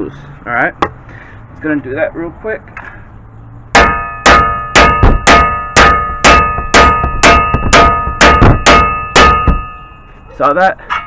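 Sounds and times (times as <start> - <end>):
hammer striking steel: 3.7 - 10.1.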